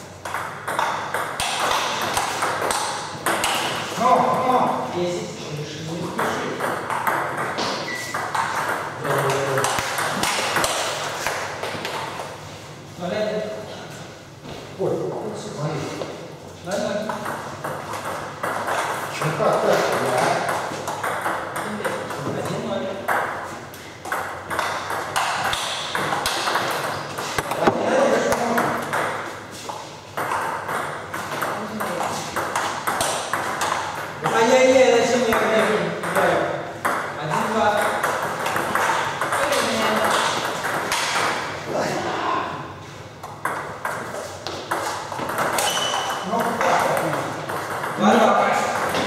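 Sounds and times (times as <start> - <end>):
ping pong ball clicking: 0.2 - 3.8, 19.9 - 22.1, 24.0 - 27.7, 30.2 - 34.0, 44.7 - 48.1.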